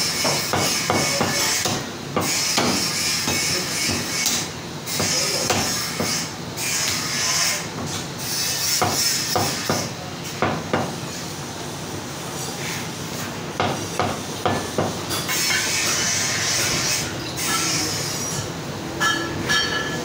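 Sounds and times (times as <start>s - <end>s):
cleaver chopping on wooden block: 0.2s - 4.4s, 5.0s - 6.2s.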